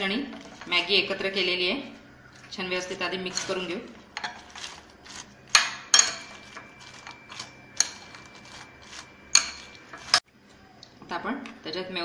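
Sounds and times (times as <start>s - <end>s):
spoon clinking against a bowl: 3.3s - 4.4s, 5.5s - 10.2s.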